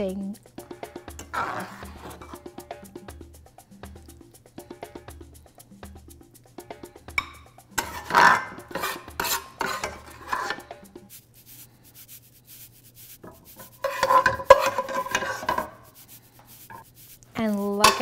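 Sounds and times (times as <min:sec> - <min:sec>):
spoon scraping a pot: 0:00.6 - 0:02.9, 0:07.1 - 0:18.0
spoon knocking on ringing pot: 0:07.1 - 0:08.0.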